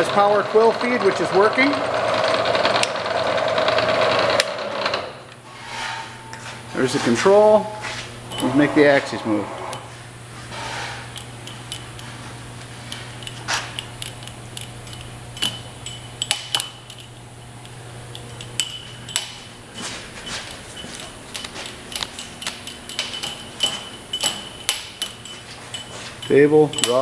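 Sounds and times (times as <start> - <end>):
low hum of mill drives: 0.0 - 27.0
higher-pitched hum: 5.4 - 27.0
sharp metallic clinks: 8.3 - 9.9, 12.9 - 27.0.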